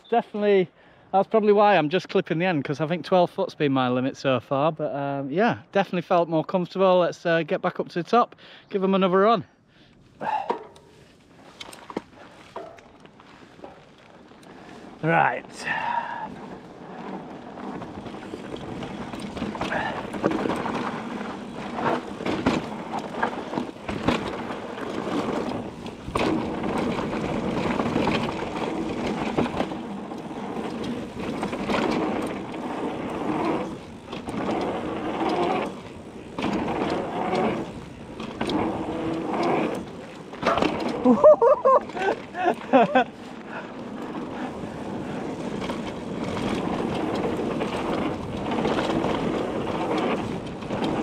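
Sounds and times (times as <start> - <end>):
bike tyres rumbling over dirt: 10.2 - 51.0.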